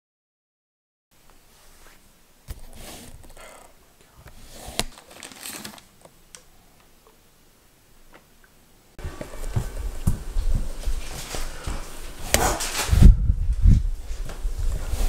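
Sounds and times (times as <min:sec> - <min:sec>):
rustling and handling noises: 0:01.2 - 0:07.2, 0:09.0 - 0:15.0.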